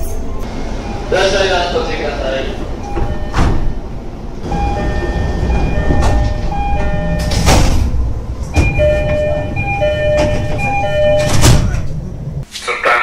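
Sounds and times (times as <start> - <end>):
train rumble: 0.0 - 12.5
two-note electronic door chime: 4.5 - 7.6, 8.6 - 11.5.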